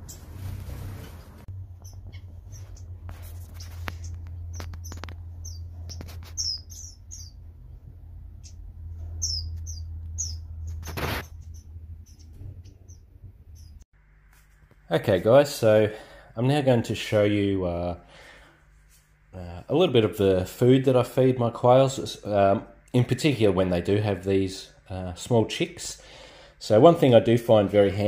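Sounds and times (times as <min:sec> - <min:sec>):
steady low hum: 0:00.0 - 0:28.0
high-pitched bird chirps: 0:01.8 - 0:02.9, 0:03.5 - 0:07.5, 0:08.4 - 0:13.8
brief rustle: 0:10.7 - 0:11.5.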